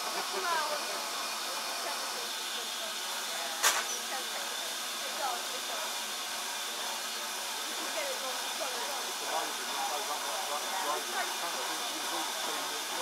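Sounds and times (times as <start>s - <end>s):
steam hissing: 0.0s - 13.0s
sharp click: 3.6s - 4.0s.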